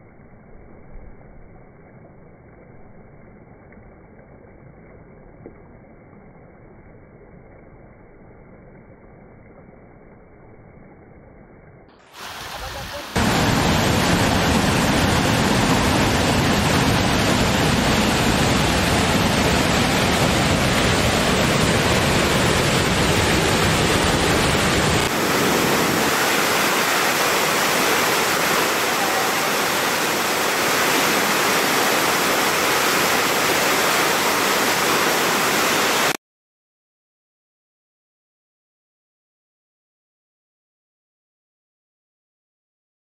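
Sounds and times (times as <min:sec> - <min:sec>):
waterfall rushing: 0:12.0 - 0:36.2.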